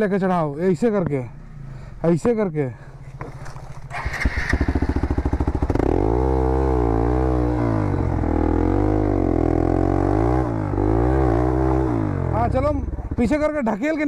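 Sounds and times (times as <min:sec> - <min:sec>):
motorcycle engine revving: 0:03.9 - 0:13.5.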